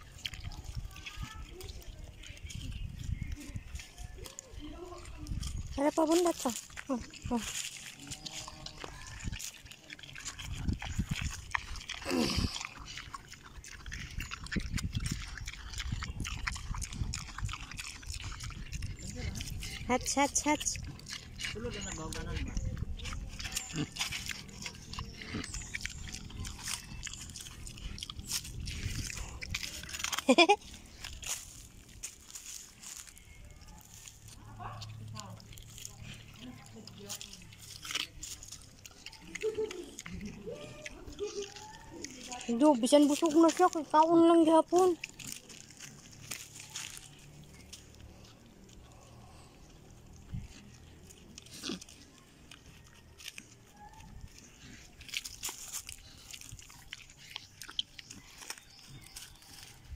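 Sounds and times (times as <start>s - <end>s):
pig chewing and crunching: 0.0s - 59.9s.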